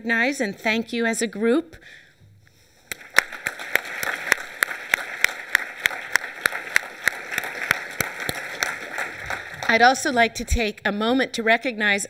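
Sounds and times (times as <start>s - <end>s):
hand claps close to microphone: 2.9s - 9.8s
audience applauding: 2.9s - 10.3s.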